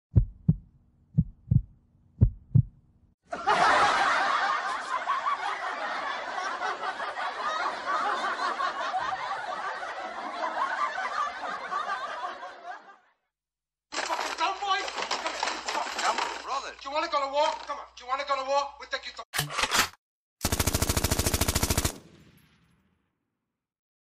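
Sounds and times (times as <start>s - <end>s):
heartbeat-like low thumps: 0.1s - 3.0s
loud laughter: 3.3s - 13.2s.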